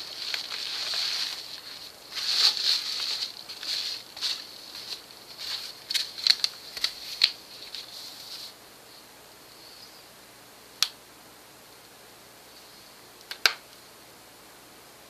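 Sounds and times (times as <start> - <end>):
packaging rustling: 0.0 - 8.4.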